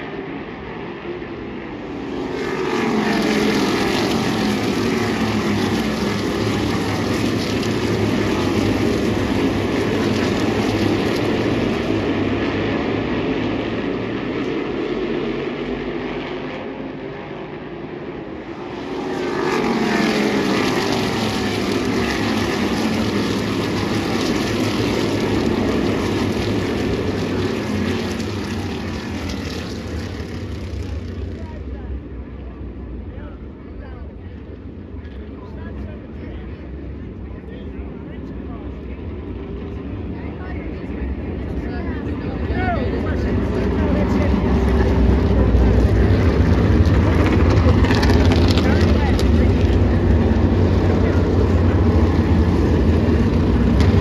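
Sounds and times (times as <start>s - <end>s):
race car engines passing: 0.0s - 54.0s.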